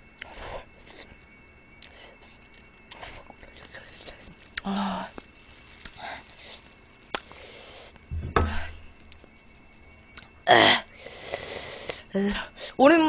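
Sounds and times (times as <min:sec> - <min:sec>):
sharp breath and hissing exhale: 0:06.4 - 0:08.0, 0:11.0 - 0:12.1
dull thump: 0:08.1 - 0:08.8.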